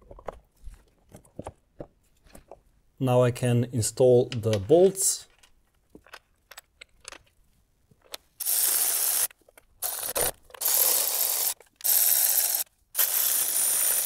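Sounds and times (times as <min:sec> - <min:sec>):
ratchet wrench clicking: 0:08.4 - 0:14.0.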